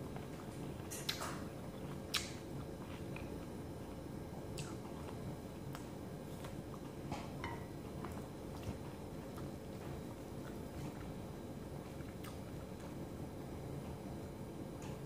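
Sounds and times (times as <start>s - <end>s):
steady low hum: 0.0s - 15.0s
person chewing: 0.2s - 13.0s
mouth smacks: 0.8s - 3.3s, 4.6s - 7.0s.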